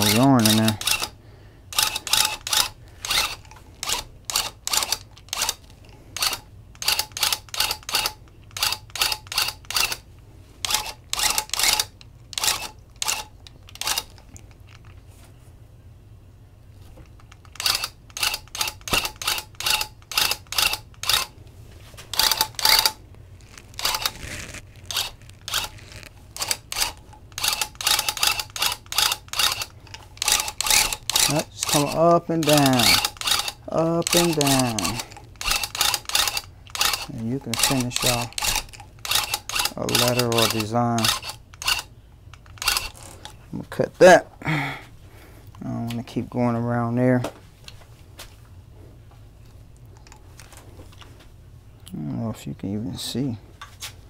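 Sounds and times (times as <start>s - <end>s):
tufting gun bursts: 0.0s - 5.6s, 23.8s - 43.0s.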